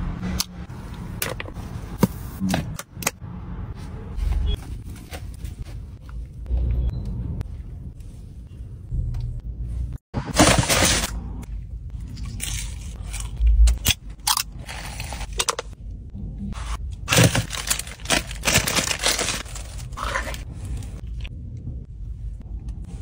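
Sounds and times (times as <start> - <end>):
paper wrapper rustling and crinkling: 17.1 - 21.0.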